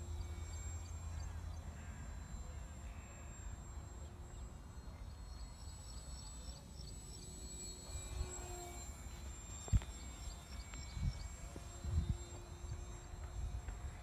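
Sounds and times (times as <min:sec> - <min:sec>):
model airplane motor drone: 0:00.0 - 0:14.0
wind rumbling on microphone: 0:10.7 - 0:14.0.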